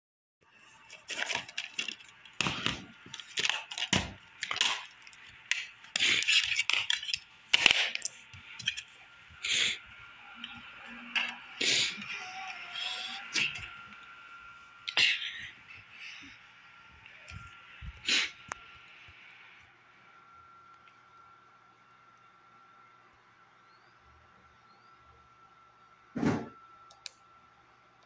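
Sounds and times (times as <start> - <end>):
plastic dvd case clicks and snaps: 1.1 - 8.8.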